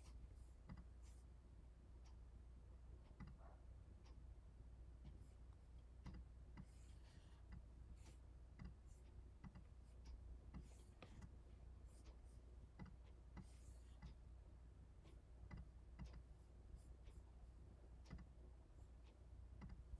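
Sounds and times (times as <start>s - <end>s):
computer mouse clicks: 0.0s - 1.2s, 3.0s - 4.2s, 6.0s - 14.2s, 15.3s - 17.3s, 18.0s - 18.4s, 19.0s - 19.9s.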